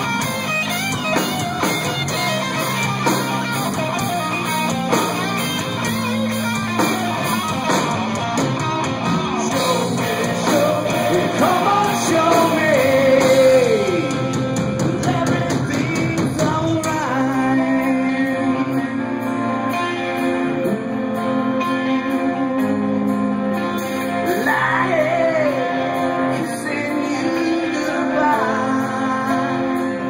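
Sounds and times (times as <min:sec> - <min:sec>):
live rock band playing: 0:00.0 - 0:30.0
person singing: 0:09.4 - 0:23.4, 0:24.0 - 0:30.0.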